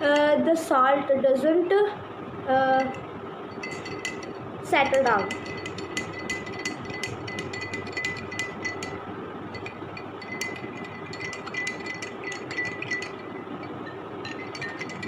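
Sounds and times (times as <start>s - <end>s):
faint hum: 0.0s - 15.0s
teaspoon clinking in a glass: 3.6s - 15.0s.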